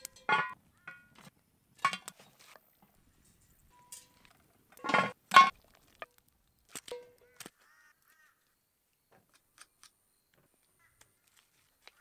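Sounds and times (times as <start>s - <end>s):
metal utensil clinking on pot: 0.0s - 1.1s, 3.7s - 5.6s.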